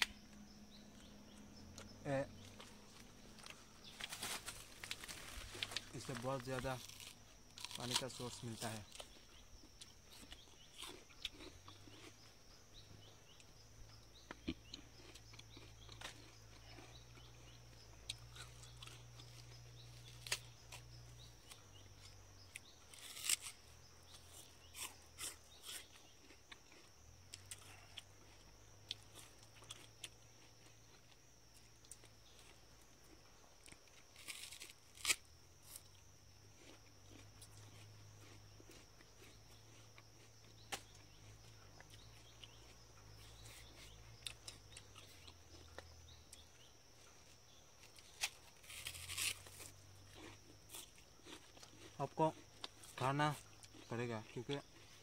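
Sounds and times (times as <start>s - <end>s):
plant stems snapping and tearing: 3.4s - 9.1s, 22.9s - 23.6s, 34.2s - 35.2s.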